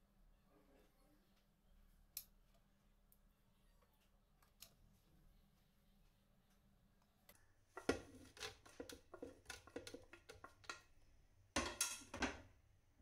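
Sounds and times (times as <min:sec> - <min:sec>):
spoon scraping and tapping plate: 0:07.7 - 0:11.0.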